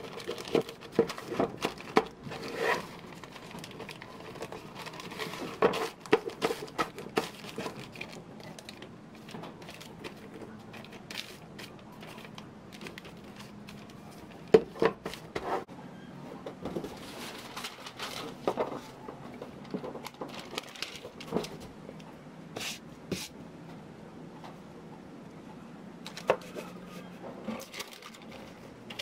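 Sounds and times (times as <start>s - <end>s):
wrapping paper rustling: 0.0s - 15.4s, 16.8s - 21.8s, 26.1s - 29.0s.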